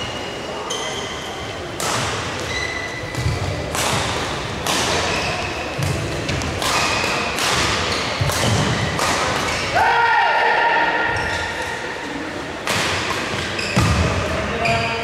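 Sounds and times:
shoes thudding and squeaking: 0:00.0 - 0:04.2, 0:04.8 - 0:09.7, 0:13.2 - 0:15.0
racket striking shuttlecock: 0:01.8 - 0:02.5, 0:03.1 - 0:09.7.

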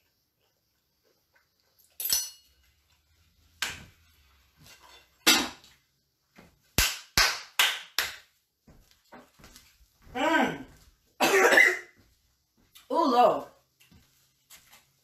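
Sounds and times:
kitchen items knocking and clattering: 0:03.4 - 0:05.8.

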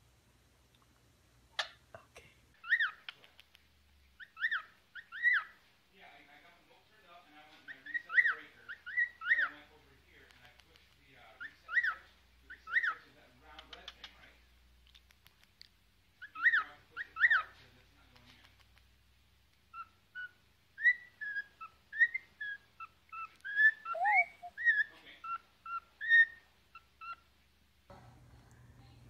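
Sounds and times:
cockatiel whistling: 0:19.7 - 0:27.2.

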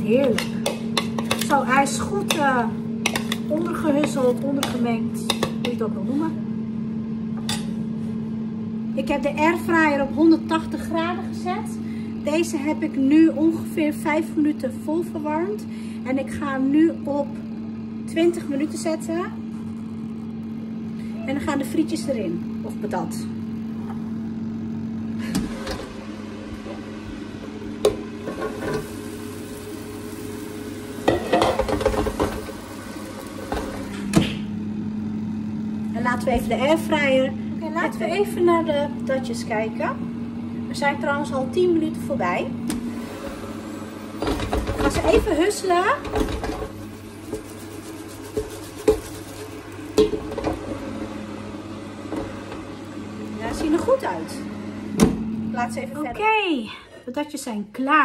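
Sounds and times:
airfryer fan hum: 0:00.0 - 0:58.0
fries clattering into mesh basket: 0:46.1 - 0:50.6.

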